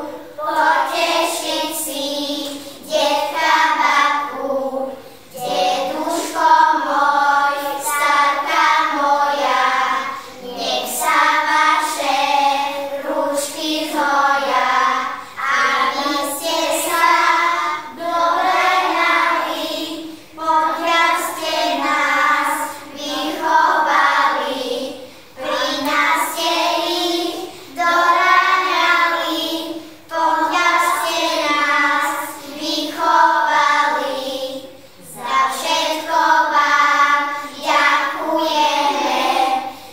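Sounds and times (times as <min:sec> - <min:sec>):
young children singing: 0:00.0 - 0:39.9.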